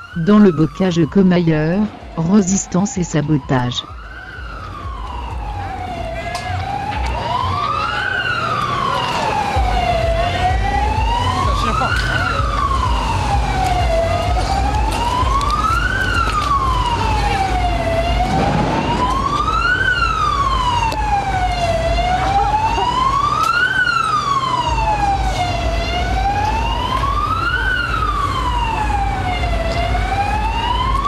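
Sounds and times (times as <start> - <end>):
siren wailing: 0.0 - 31.0
steady low rumble: 9.5 - 22.8.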